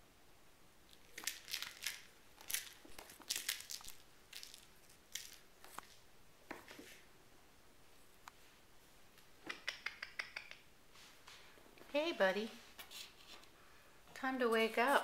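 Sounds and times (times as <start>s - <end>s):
kitten scratching and crinkling: 0.9s - 7.0s.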